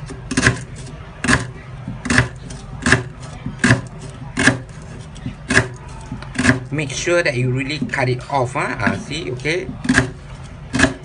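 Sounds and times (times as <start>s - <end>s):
knife chopping on cutting board: 0.1s - 4.8s, 5.4s - 6.7s, 9.6s - 11.0s.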